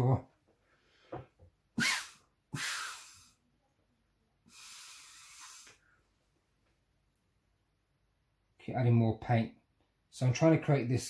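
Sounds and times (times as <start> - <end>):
air blown through a straw: 1.8 - 3.4, 4.5 - 5.8.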